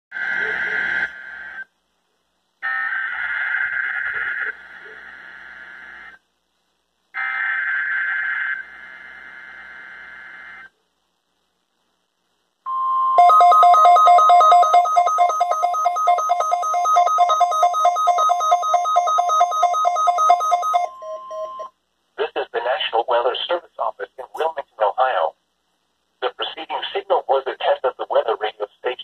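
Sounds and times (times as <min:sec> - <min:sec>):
rapid two-pitch alert beeping: 0:13.2 - 0:21.7
steady warning alarm tone: 0:13.2 - 0:21.7.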